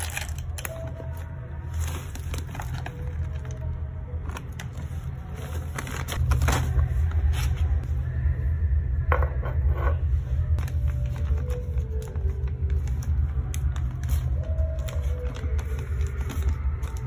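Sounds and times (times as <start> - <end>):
steady low hum: 6.1 - 17.0.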